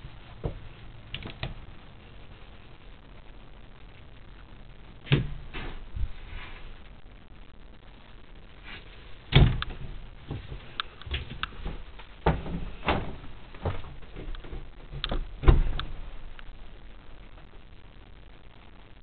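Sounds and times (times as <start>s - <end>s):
wooden cabinet doors thumping: 9.3s - 10.6s, 11.2s - 16.0s.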